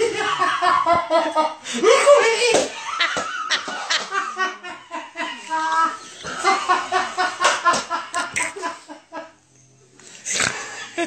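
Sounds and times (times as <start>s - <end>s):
excited voices: 0.0s - 3.6s.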